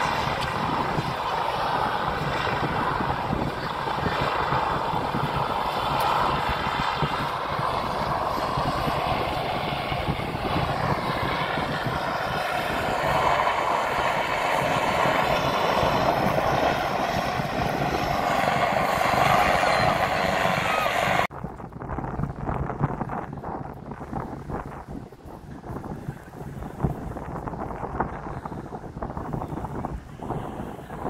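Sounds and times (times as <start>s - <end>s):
helicopter hovering: 0.0s - 21.3s.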